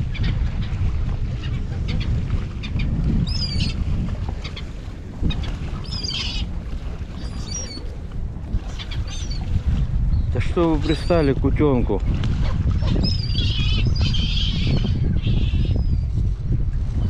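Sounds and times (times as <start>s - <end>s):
gulls calling harshly: 0.0s - 9.6s
wind buffeting microphone: 0.0s - 17.0s.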